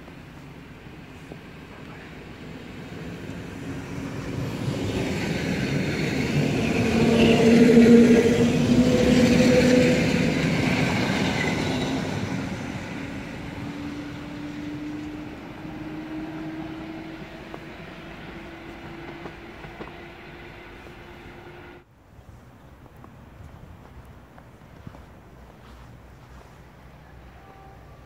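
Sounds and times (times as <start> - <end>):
electric train wheel and running noise: 0.1 - 21.8
train hum rising in pitch: 2.8 - 21.8.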